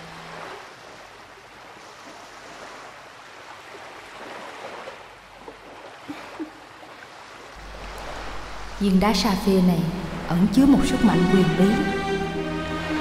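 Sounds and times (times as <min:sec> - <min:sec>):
rushing ambient noise: 0:07.6 - 0:13.0.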